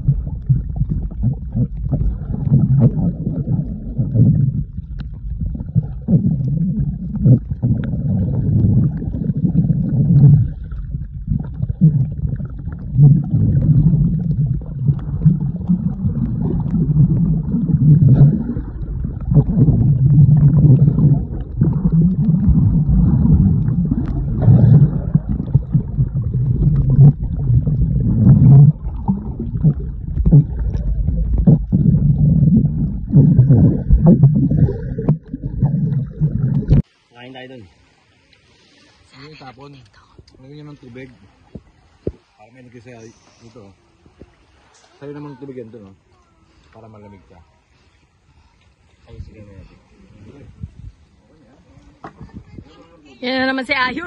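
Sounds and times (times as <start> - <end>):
underwater rushing rumble: 0.0 - 37.0.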